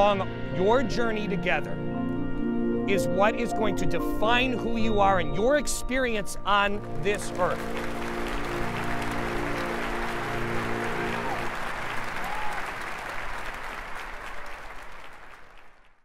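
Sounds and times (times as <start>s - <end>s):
sustained musical chord: 0.0s - 12.0s
crowd applauding: 6.8s - 16.0s.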